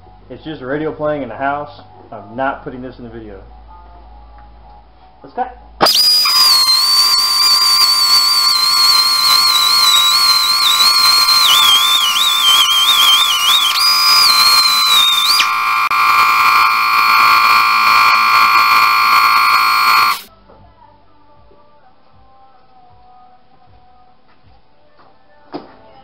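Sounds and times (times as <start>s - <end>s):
cut-off wheel whining through steel: 5.8s - 20.3s
steady buzzing hum: 5.8s - 20.3s.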